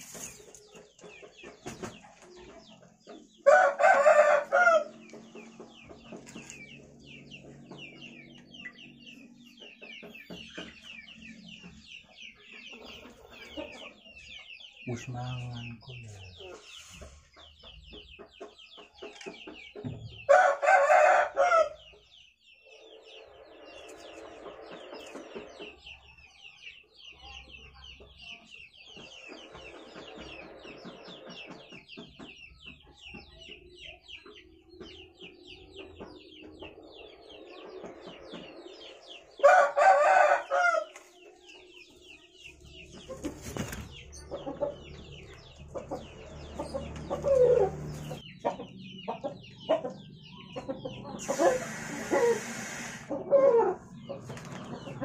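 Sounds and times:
quiet animal sounds: 0:00.0 - 0:20.6, 0:21.5 - 0:55.0
rooster crowing: 0:03.4 - 0:04.9, 0:39.4 - 0:40.9.

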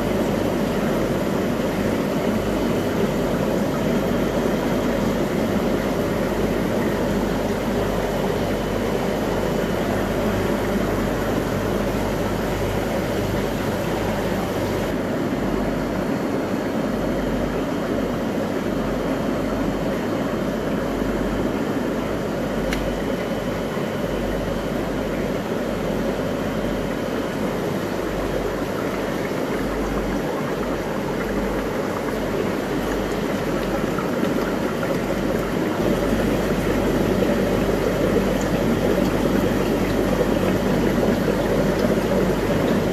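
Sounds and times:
aquarium pumps and filters humming: 0:00.0 - 0:42.9.

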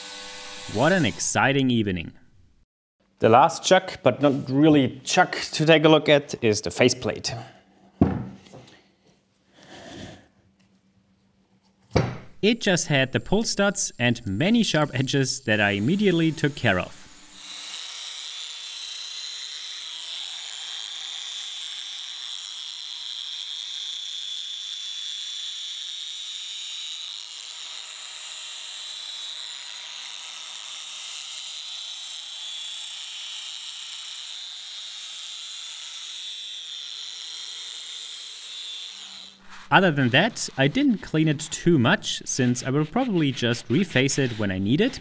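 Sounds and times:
belt sander grinding metal: 0:00.0 - 0:01.3, 0:12.4 - 0:24.1, 0:26.8 - 0:45.0.

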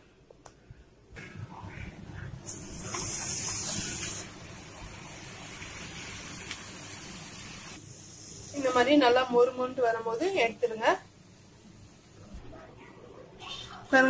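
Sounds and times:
dough sizzling in hot oil: 0:02.5 - 0:12.1.

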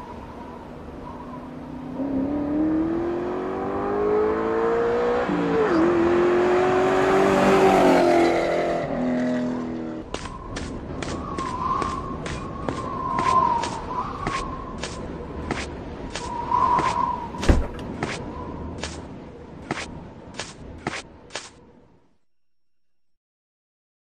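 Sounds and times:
car engine accelerating: 0:01.7 - 0:09.8.

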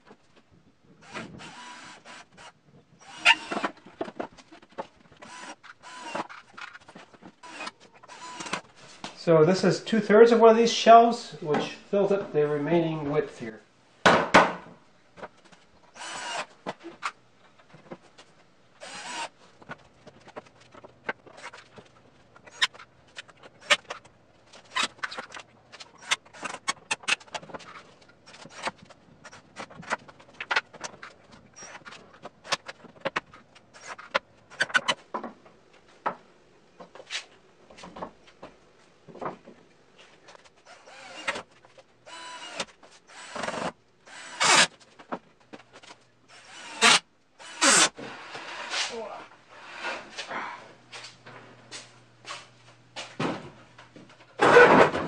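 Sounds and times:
cordless drill driving screws: 0:01.0 - 0:03.8, 0:05.2 - 0:06.4, 0:07.4 - 0:08.7, 0:16.0 - 0:16.5, 0:18.8 - 0:19.4, 0:40.7 - 0:44.8, 0:46.3 - 0:48.0.

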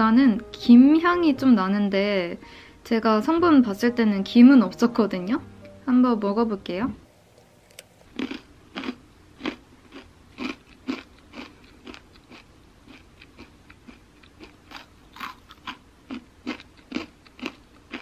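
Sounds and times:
crunching chip stick: 0:07.7 - 0:18.0.

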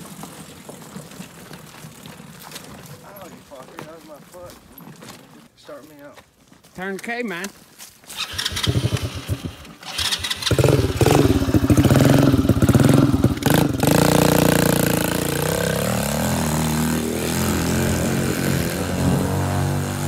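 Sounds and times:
small engine starting and revving: 0:08.1 - 0:20.0.

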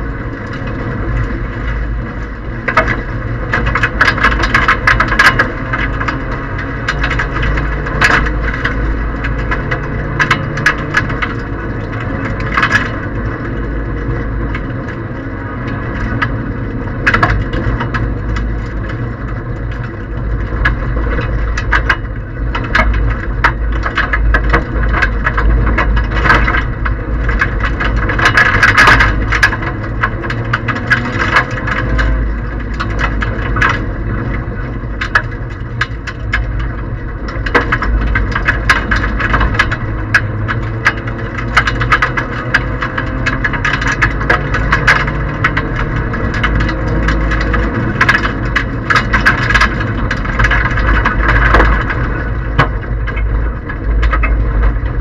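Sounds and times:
car engine droning: 0:00.0 - 0:55.0
gravel rattling against car underside: 0:00.0 - 0:55.0.

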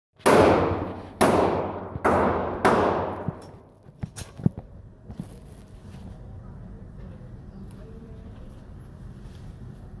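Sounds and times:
pistol shots echoing indoors: 0:00.2 - 0:03.5.

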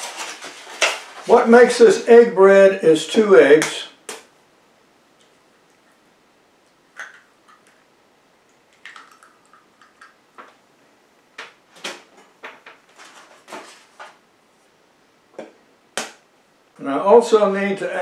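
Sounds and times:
eggs cracking on bowl rim: 0:06.9 - 0:07.8, 0:08.7 - 0:10.5.

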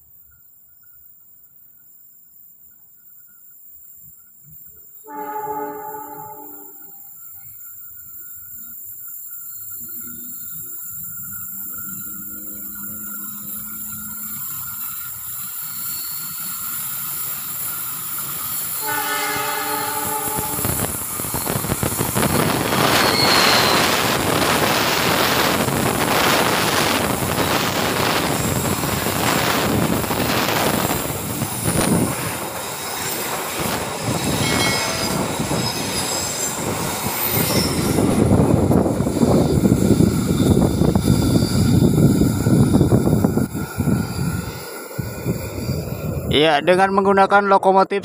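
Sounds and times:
train wheels rumbling on rails: 0:00.0 - 0:47.2
high-pitched wheel squeals: 0:05.1 - 0:07.7, 0:09.5 - 0:46.1
locomotive engine running: 0:08.8 - 0:15.8.

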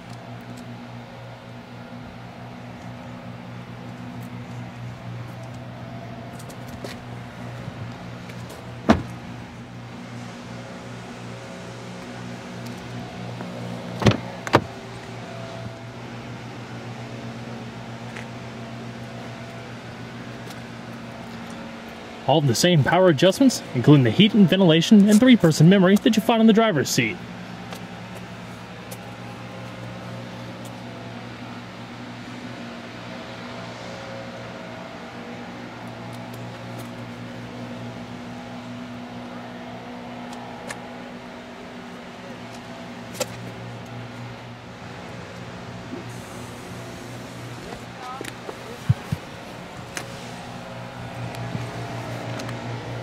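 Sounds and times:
steady low hum: 0:00.0 - 0:53.0
car door latch clicks: 0:08.9 - 0:09.2, 0:14.0 - 0:14.7.

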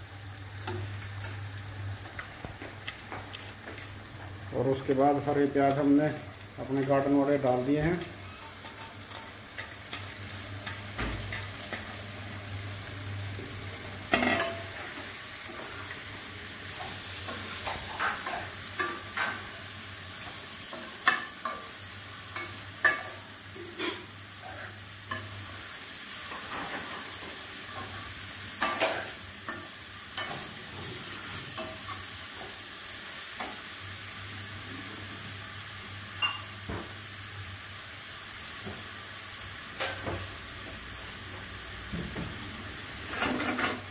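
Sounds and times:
onions sizzling in a pan: 0:00.0 - 0:43.9
metal spatula scraping a pan: 0:22.4 - 0:24.7.

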